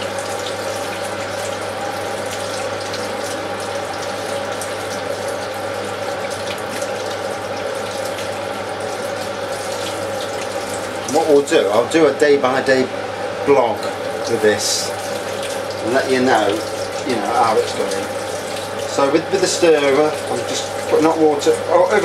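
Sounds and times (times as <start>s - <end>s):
tap water running into sink: 0.0s - 12.2s, 13.5s - 22.0s.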